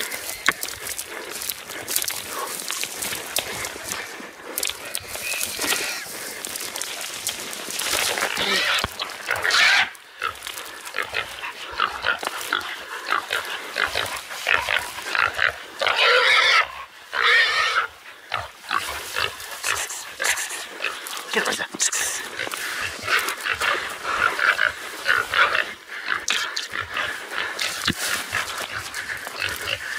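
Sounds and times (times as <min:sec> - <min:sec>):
brush rustling and snapping: 0:00.0 - 0:15.3, 0:18.7 - 0:25.6, 0:26.3 - 0:29.9
pig squealing: 0:04.6 - 0:06.2, 0:08.0 - 0:29.9.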